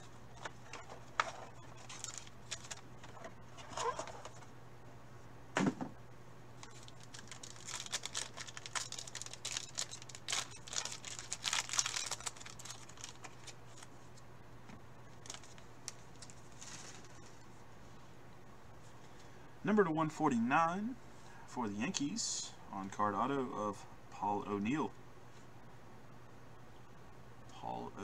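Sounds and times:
wrapper crinkling and tearing: 1.7s - 4.3s, 6.6s - 13.9s, 15.1s - 17.3s.

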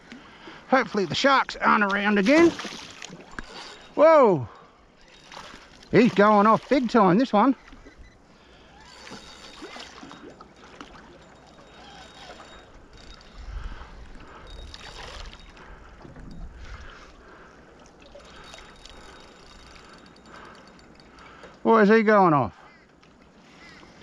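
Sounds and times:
water lapping against boat hull: 0.0s - 21.7s
wind rumble on microphone: 13.1s - 17.0s.

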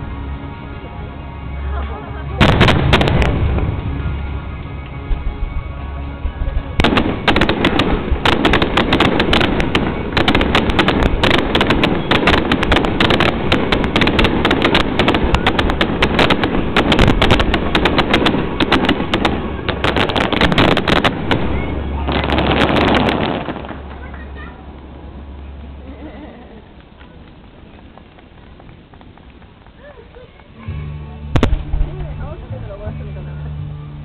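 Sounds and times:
fireworks bursting: 2.4s - 25.8s, 31.3s - 32.4s.

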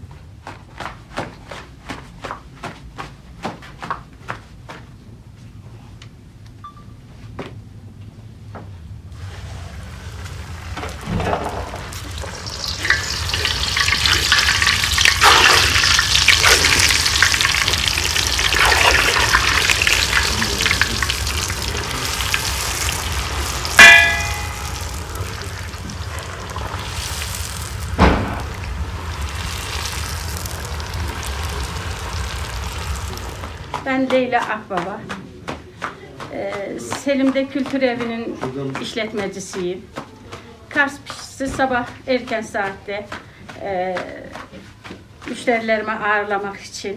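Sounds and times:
dough sizzling in hot oil: 9.2s - 33.8s
ringing metal clink: 23.8s - 25.0s.

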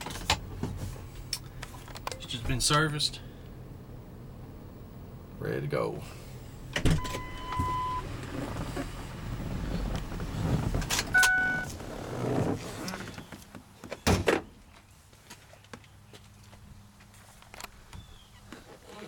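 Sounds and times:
car door opening: 6.5s - 14.5s
electronic beeps: 7.0s - 8.0s, 11.2s - 11.7s.

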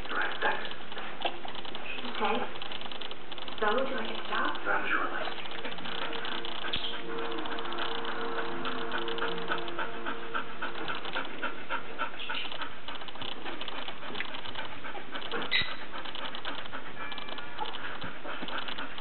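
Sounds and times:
puppies clicking and panting: 0.0s - 19.0s
puppy squeak: 15.2s - 17.8s.

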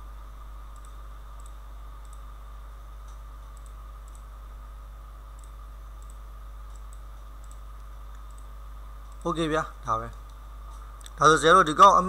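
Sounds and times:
low electrical hum: 0.0s - 12.0s
computer mouse clicking: 0.7s - 2.3s, 3.0s - 4.3s, 5.3s - 9.4s.

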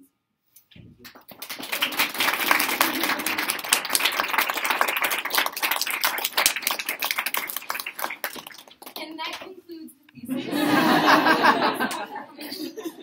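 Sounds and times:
audience applause: 1.0s - 9.1s.

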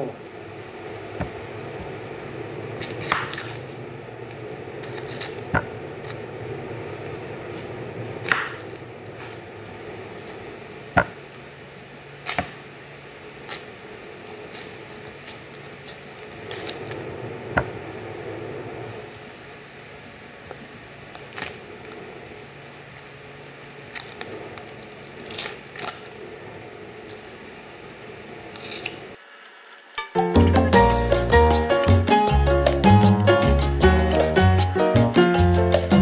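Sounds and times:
steady low hum: 0.0s - 29.2s
knife peeling onion skin: 2.8s - 6.3s, 12.1s - 12.6s, 13.3s - 17.1s, 23.6s - 26.1s, 28.5s - 29.0s.

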